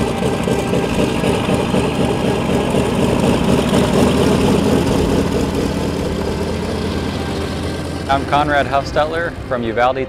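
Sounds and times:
radial aircraft engine running: 0.0 - 10.0.

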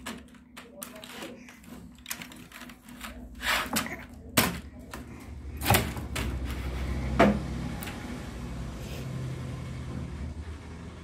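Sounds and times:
baby slapping keyboard: 0.0 - 8.0
vehicle engine humming: 4.8 - 11.0.

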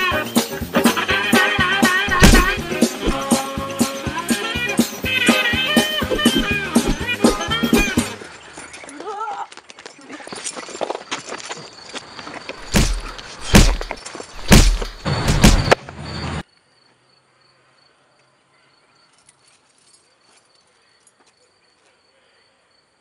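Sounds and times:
fist fight smacks and thuds: 2.1 - 3.4, 6.1 - 8.0, 12.6 - 15.8
crickets chirping: 10.1 - 18.2, 18.8 - 23.0.

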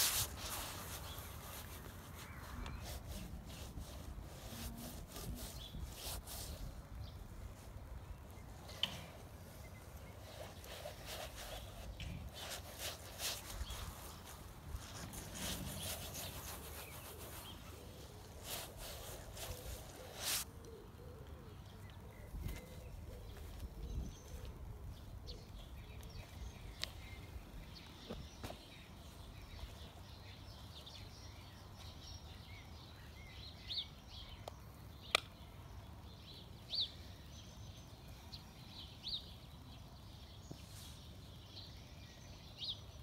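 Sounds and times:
hand rubbing paint on canvas: 0.0 - 6.7, 10.2 - 20.5.

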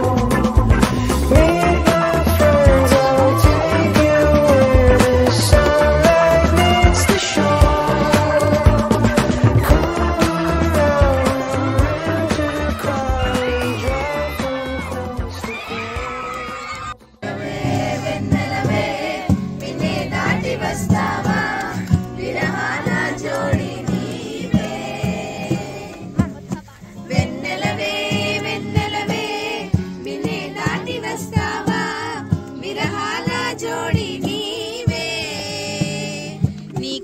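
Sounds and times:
group of people singing: 0.0 - 15.9, 17.2 - 36.5
strummed acoustic guitar: 17.2 - 37.0.

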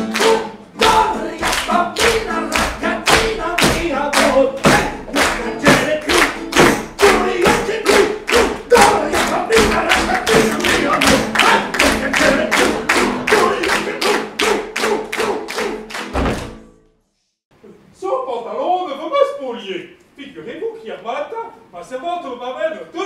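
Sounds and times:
lively dance music: 0.0 - 15.7.

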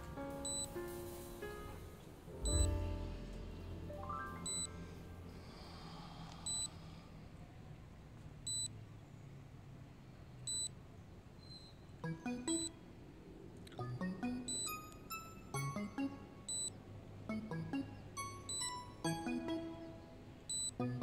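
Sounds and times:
soft background music: 0.0 - 6.8, 12.0 - 21.0
short high electronic beep: 2.4 - 2.7, 4.4 - 4.7.

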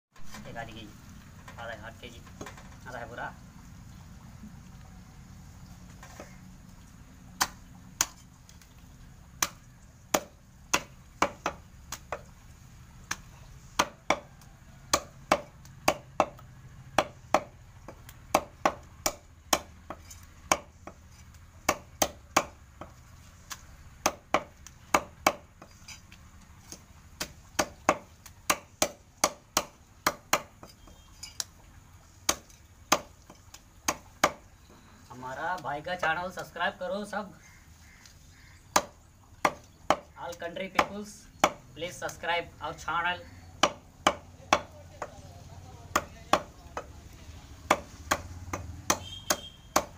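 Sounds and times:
cleaver chopping on wooden block: 9.4 - 12.3, 13.1 - 14.3, 14.9 - 16.4, 17.0 - 21.0, 21.6 - 25.7, 26.7 - 31.1, 32.3 - 33.1, 33.9 - 34.4, 38.7 - 41.7, 43.6 - 45.2, 45.9 - 47.0, 47.6 - 49.9.

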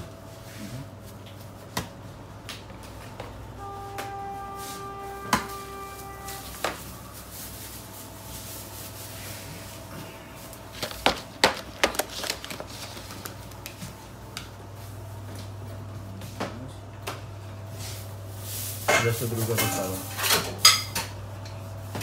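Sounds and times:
utensils and containers clattering: 18.8 - 21.6.

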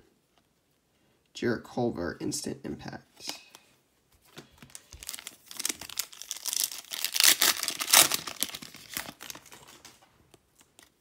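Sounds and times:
foil wrapper tearing and crinkling: 4.6 - 9.9.

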